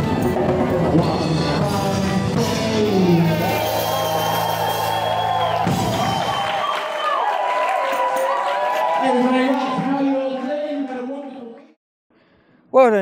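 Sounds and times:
live band music: 0:00.0 - 0:06.3.

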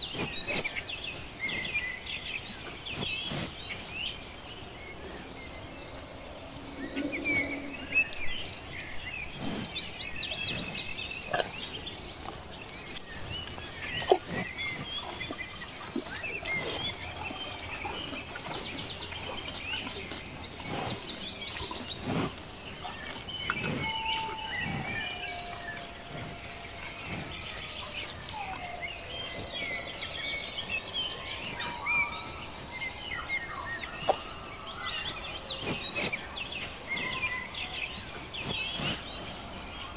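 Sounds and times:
small birds chirping: 0:00.0 - 0:39.9
low whistled bird calls: 0:06.6 - 0:08.2.

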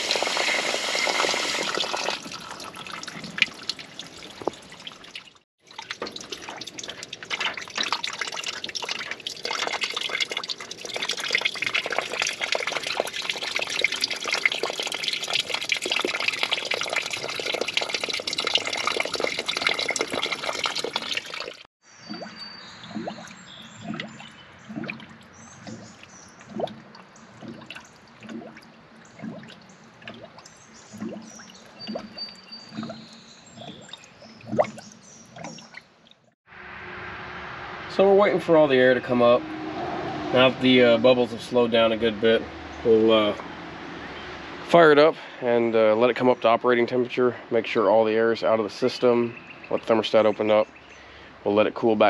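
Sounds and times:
air bubbling up: 0:00.0 - 0:35.8
water running and splashing: 0:00.0 - 0:36.3.

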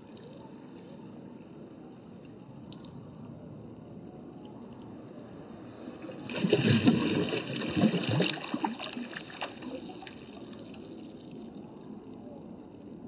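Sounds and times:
stream trickling: 0:04.7 - 0:13.0
water splashing around a hand: 0:06.2 - 0:10.3.

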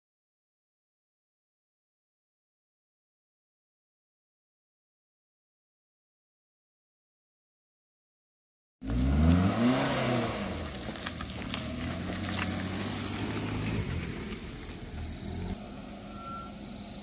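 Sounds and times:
car engine revving: 0:08.8 - 0:17.0.

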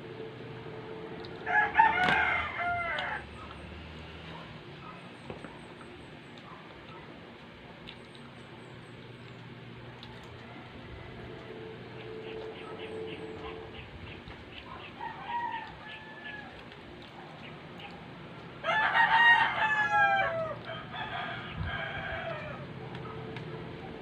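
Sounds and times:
rooster crowing: 0:00.8 - 0:03.4, 0:10.4 - 0:13.8, 0:14.8 - 0:16.7, 0:18.6 - 0:23.2.

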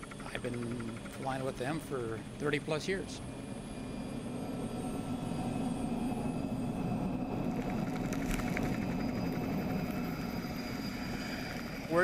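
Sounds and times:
rapid rattle of ticks: 0:00.0 - 0:01.8, 0:07.4 - 0:10.4
helicopter engine and rotor: 0:00.0 - 0:12.0.

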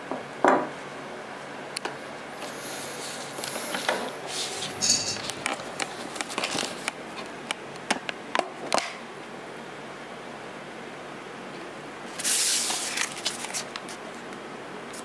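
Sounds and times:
foam packing sheet crinkling: 0:04.3 - 0:06.9, 0:12.2 - 0:13.7.

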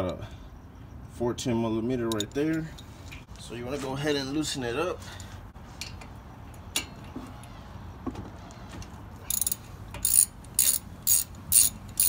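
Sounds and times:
ratchet pawl clicks: 0:09.3 - 0:12.0.

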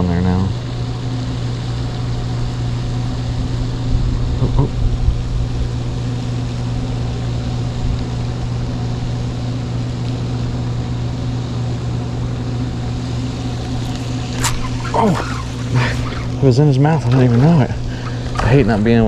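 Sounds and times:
low mechanical hum: 0:00.0 - 0:19.0
wind rumbling on microphone: 0:03.2 - 0:08.6.

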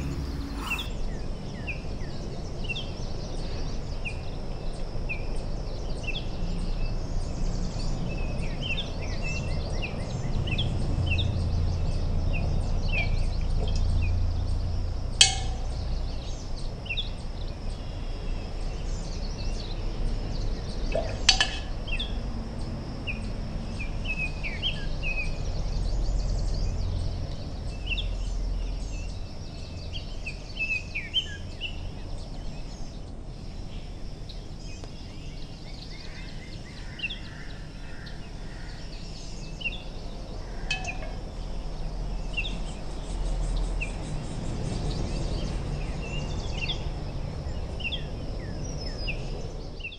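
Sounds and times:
birds chirping: 0:00.0 - 0:01.0
low background rumble: 0:00.0 - 0:01.2.

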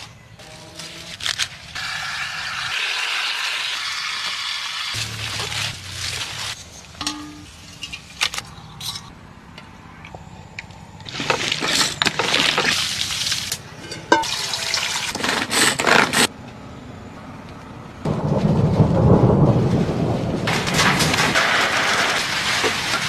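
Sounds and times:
water poured from metal pot: 0:12.2 - 0:15.2.

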